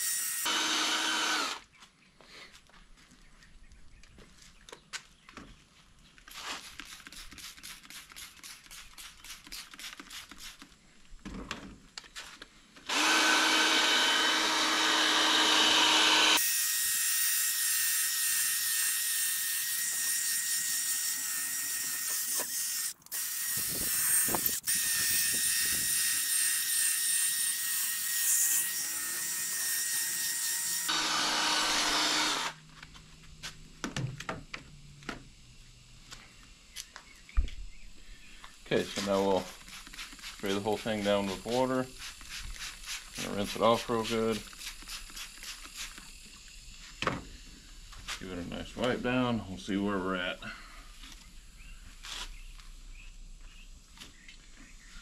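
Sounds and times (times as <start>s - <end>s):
cordless drill sanding plastic: 0.0s - 1.6s, 12.8s - 32.6s, 38.8s - 46.4s
spray bottle squirting: 6.3s - 10.7s, 39.4s - 40.9s, 41.9s - 43.6s, 44.4s - 46.2s.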